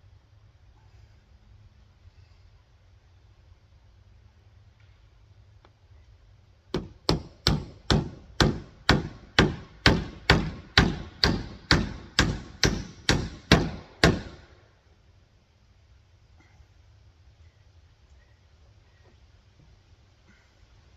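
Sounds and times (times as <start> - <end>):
hammer driving a nail: 6.7 - 14.5.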